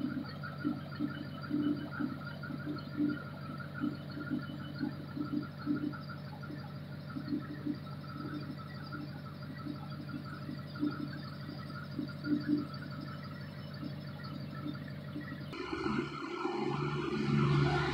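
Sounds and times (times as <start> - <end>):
engine idling: 12.9 - 17.9.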